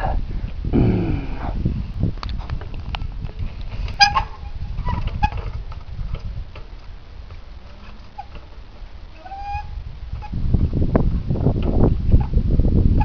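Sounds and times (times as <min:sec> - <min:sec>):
bike brakes squealing: 0:04.0 - 0:05.5, 0:07.8 - 0:08.4, 0:09.1 - 0:10.4.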